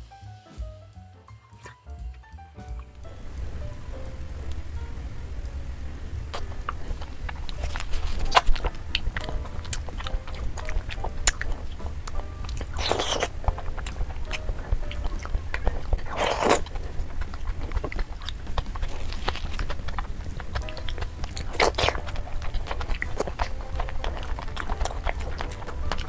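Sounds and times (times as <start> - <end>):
chewing and mouth smacks: 6.3 - 26.0.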